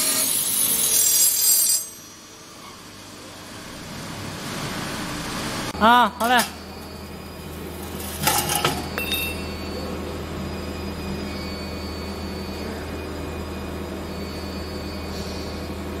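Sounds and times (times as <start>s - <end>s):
machine humming: 3.4s - 16.0s
metallic clinks: 8.2s - 9.6s.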